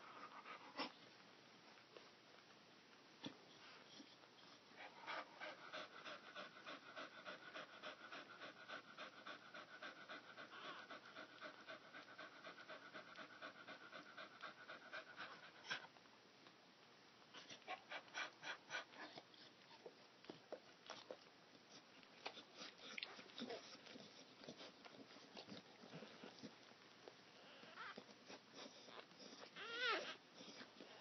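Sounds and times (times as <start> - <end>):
dog panting: 0.0 - 1.0, 3.6 - 15.9, 17.3 - 26.7, 27.5 - 31.0.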